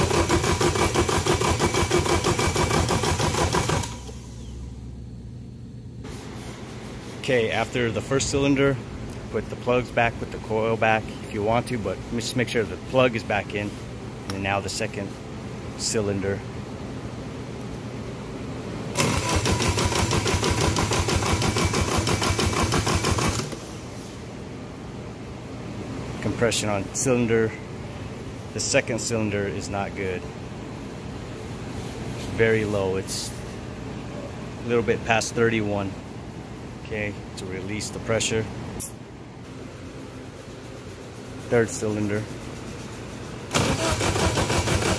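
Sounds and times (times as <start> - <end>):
engine cranking by starter motor: 0.0 - 4.6, 18.9 - 23.7, 43.5 - 44.9.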